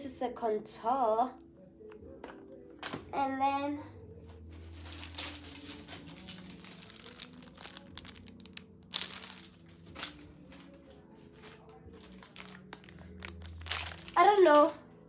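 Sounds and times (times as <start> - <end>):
plastic packaging crinkling: 4.6 - 14.7.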